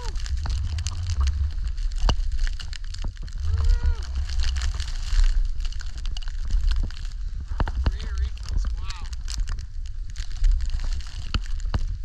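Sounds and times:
skis running through powder snow: 0:00.0 - 0:12.0
wind rumble on microphone: 0:00.0 - 0:12.0
person calling out: 0:07.9 - 0:09.1.

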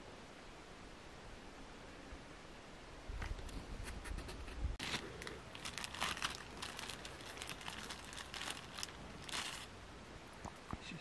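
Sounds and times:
plastic bag crinkling: 0:04.8 - 0:09.7.

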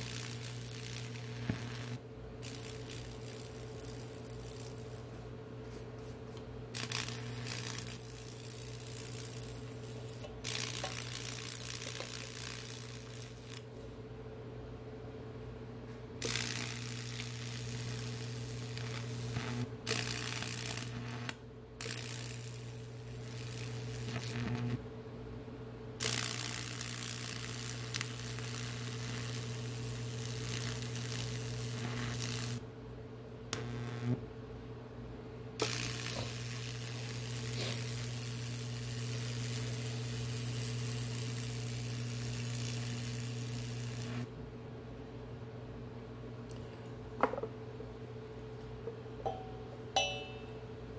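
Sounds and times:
electric arc sizzling and crackling: 0:00.0 - 0:05.8, 0:06.7 - 0:13.8, 0:16.2 - 0:24.8, 0:26.0 - 0:32.6, 0:33.5 - 0:34.2, 0:35.6 - 0:44.3.

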